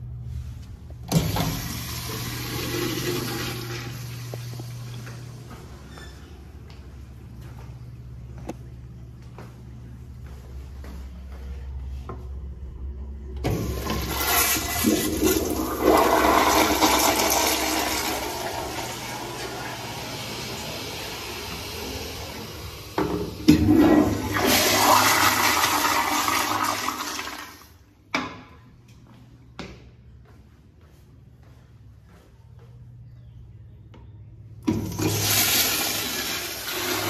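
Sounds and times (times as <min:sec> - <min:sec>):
toilet flushing water rush: 0:01.1 - 0:04.9, 0:13.4 - 0:27.8, 0:34.7 - 0:37.0.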